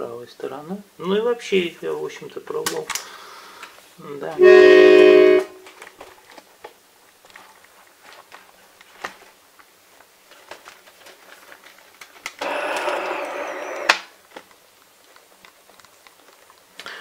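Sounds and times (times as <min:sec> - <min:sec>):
accordion reed chord: 0:04.4 - 0:05.6.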